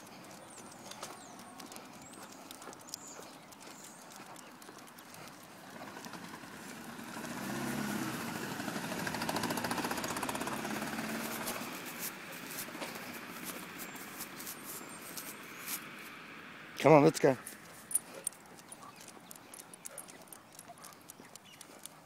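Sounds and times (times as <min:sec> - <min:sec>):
motor vehicle driving past: 0:05.4 - 0:16.8.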